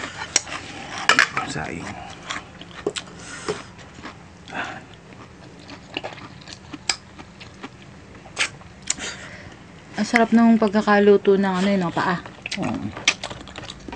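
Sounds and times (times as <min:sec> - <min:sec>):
chewing and biting: 0:00.0 - 0:09.0, 0:12.2 - 0:13.9.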